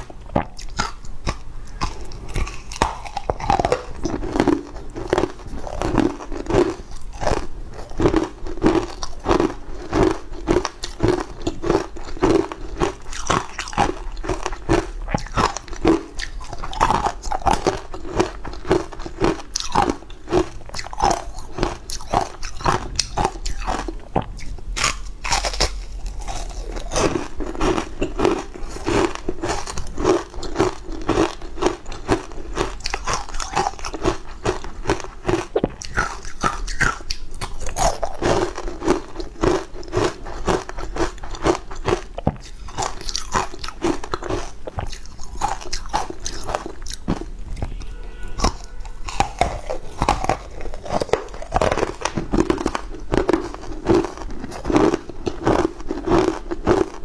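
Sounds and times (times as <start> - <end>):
crunching and chewing ice: 0.0 - 57.0.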